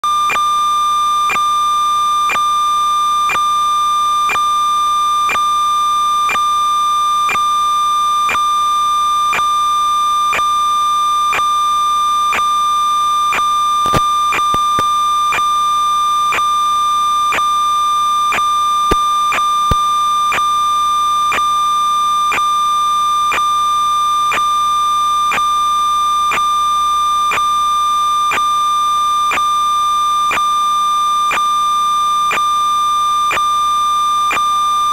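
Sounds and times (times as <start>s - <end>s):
louder clicks: 13.9s - 14.9s.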